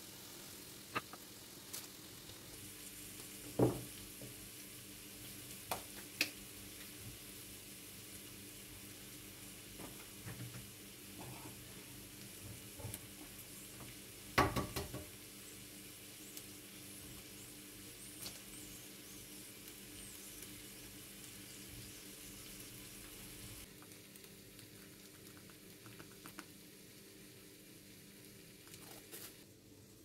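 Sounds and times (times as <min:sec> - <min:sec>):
faint steady hiss: 0:00.0 - 0:30.0
kitchen items knocking on wood: 0:14.4 - 0:15.1.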